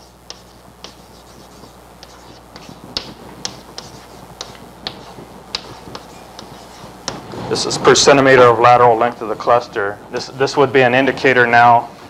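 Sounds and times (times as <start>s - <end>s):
chalk on blackboard: 0.0s - 7.2s.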